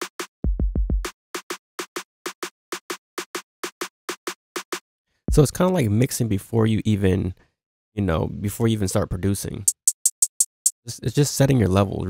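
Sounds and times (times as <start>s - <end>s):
quick low thumps: 5.3s - 5.6s.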